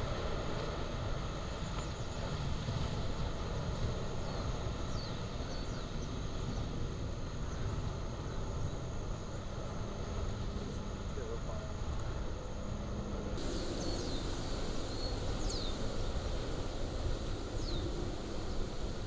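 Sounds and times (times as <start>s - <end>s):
lava fountain rumbling: 13.4s - 19.0s.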